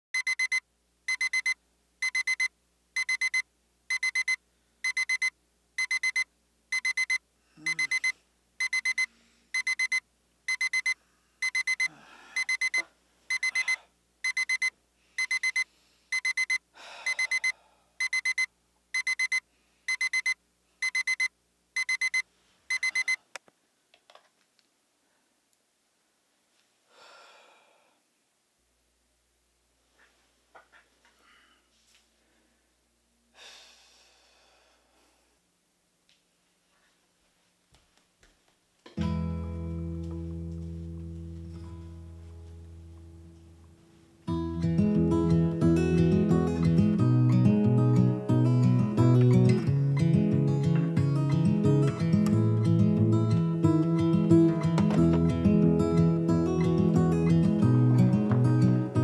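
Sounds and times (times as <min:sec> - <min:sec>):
electronic alarm beeping: 0:00.2 - 0:23.2.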